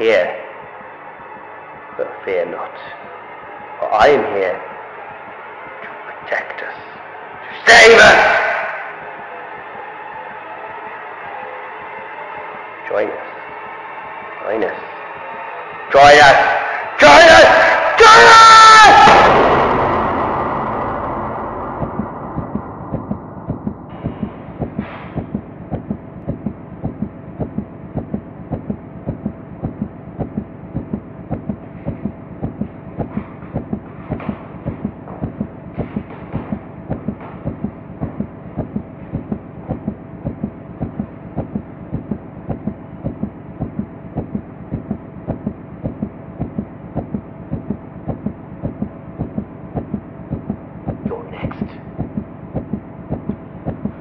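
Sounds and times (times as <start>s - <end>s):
sustained low hum: 18.9s - 54.0s
heartbeat thudding: 21.6s - 54.0s.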